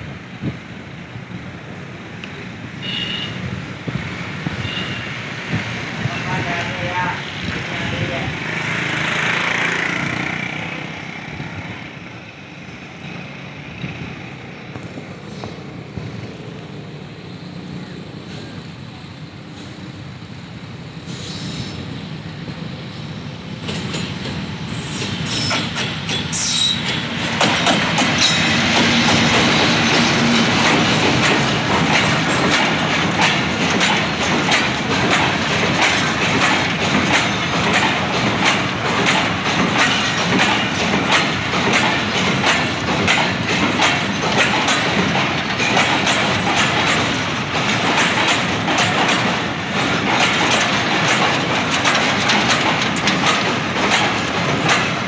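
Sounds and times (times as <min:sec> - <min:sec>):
train wheels clattering over rail joints: 0:03.5 - 0:12.2, 0:22.5 - 0:55.0
locomotive engine rumble: 0:26.8 - 0:55.0.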